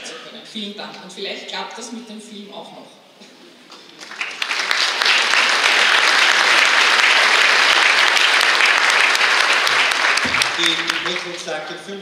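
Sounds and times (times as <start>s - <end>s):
audience applauding: 4.0s - 11.6s.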